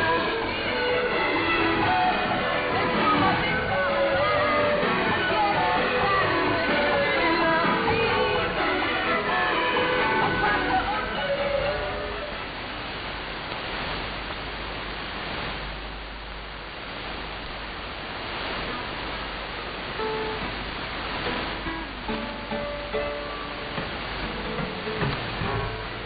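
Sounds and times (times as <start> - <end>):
music over radio: 0.0 - 13.0, 18.3 - 26.0
radio static hiss: 0.0 - 26.0.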